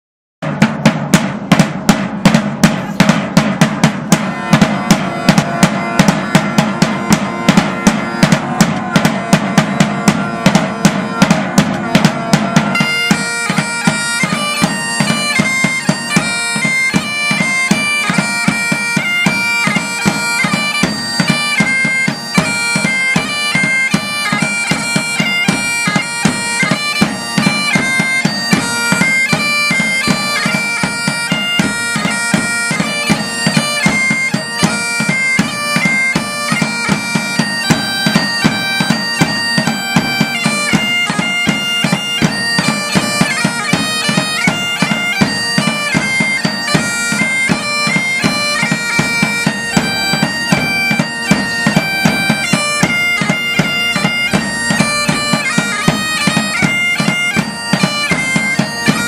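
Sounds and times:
drums beating: 0.4 - 59.0
bagpipes melody: 2.2 - 59.0.

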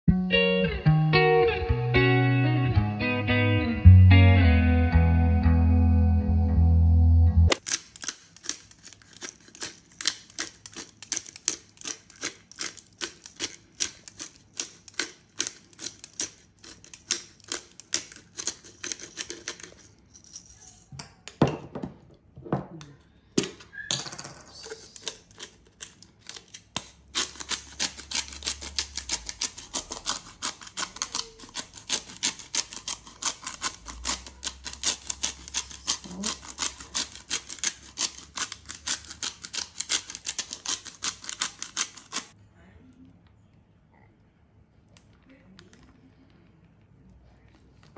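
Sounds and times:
spice grinder cracking peppercorns: 7.5 - 20.4, 24.5 - 42.4.

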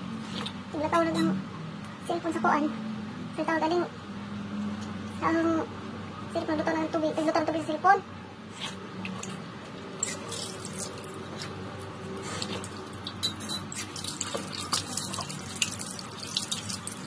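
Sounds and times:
tap water running into sink: 13.9 - 17.0.

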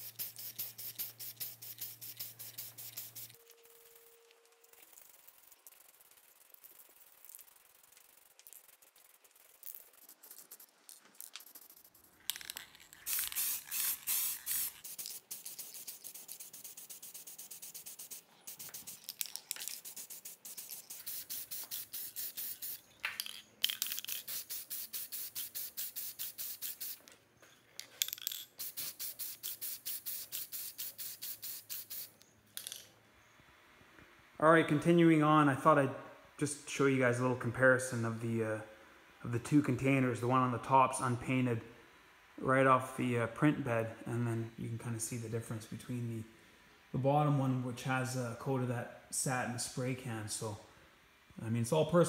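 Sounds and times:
spray can hissing and rattling: 0.0 - 27.1, 28.0 - 32.2.

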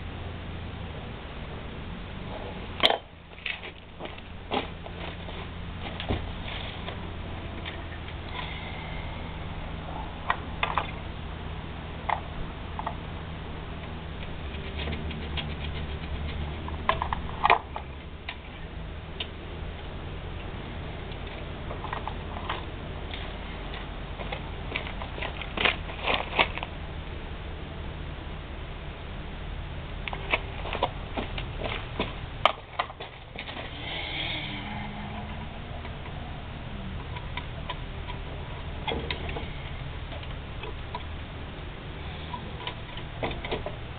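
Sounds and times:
low steady hum: 0.0 - 43.9
clicks and rattles of metal parts: 14.2 - 18.5, 21.1 - 26.7.

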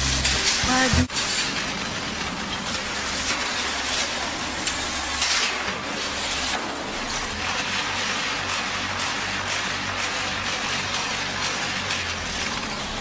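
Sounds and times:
block making machine humming: 0.0 - 13.0.

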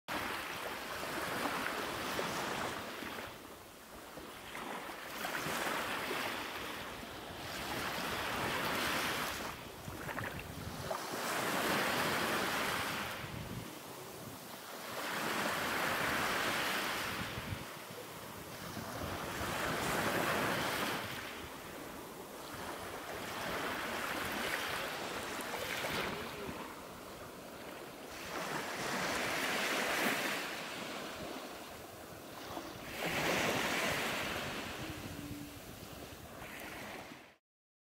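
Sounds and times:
sea surf washing onto shore: 7.6 - 37.1.

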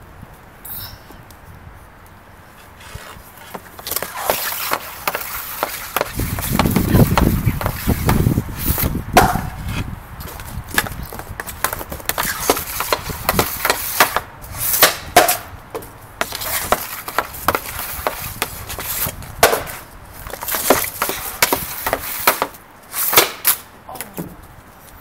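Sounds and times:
hockey stick tapping puck: 2.9 - 9.6, 10.2 - 23.6
puck shot crack: 3.0 - 24.4.

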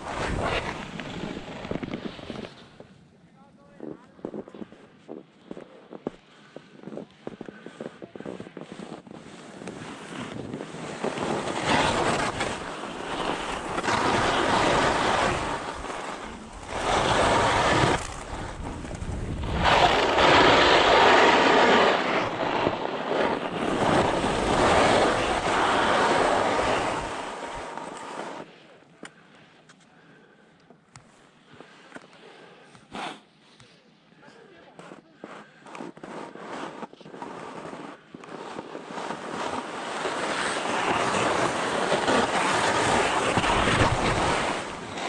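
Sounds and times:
wind noise on microphone: 0.0 - 2.9, 9.8 - 27.7, 40.3 - 45.0
skis scraping on hard snow: 0.0 - 3.0, 3.6 - 28.6, 34.7 - 45.0.

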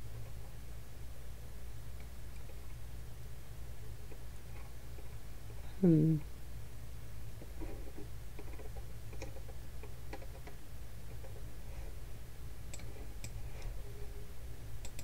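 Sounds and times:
low electrical hum: 0.0 - 15.0
computer mouse clicks: 8.4 - 11.4, 12.7 - 13.7, 14.8 - 15.0.

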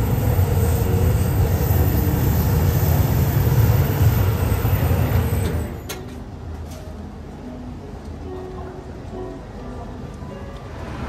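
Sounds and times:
passing vehicle rumble: 10.5 - 11.0.

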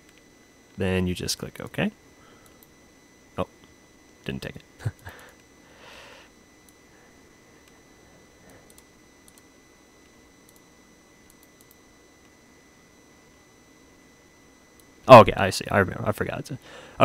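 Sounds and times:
faint electronic whine: 0.0 - 17.0
computer mouse clicks: 8.4 - 12.4.

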